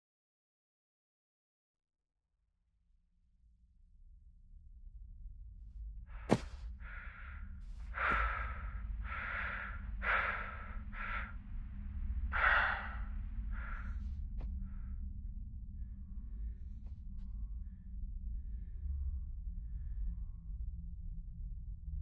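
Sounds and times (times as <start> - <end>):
low steady drone: 5.9 - 22.0.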